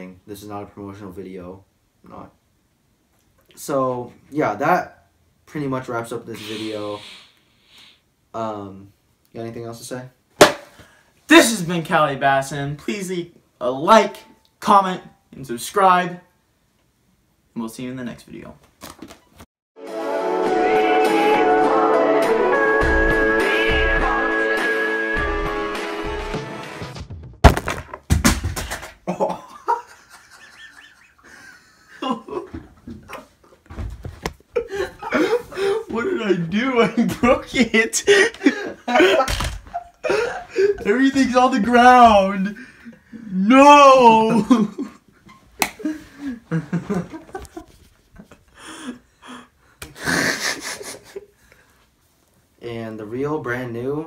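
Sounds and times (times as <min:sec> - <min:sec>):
loud breathy exhale: 0:06.4 - 0:08.1
person laughing: 0:29.1 - 0:33.3, 0:34.6 - 0:36.2, 0:36.8 - 0:40.9, 0:44.1 - 0:45.0, 0:45.8 - 0:51.3
boy wheezing laughter and gasps: 0:40.0 - 0:40.8.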